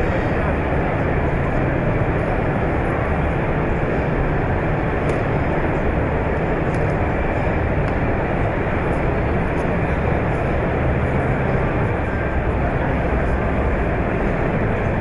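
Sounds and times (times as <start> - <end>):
exhibition hall din: 0.0 - 15.0.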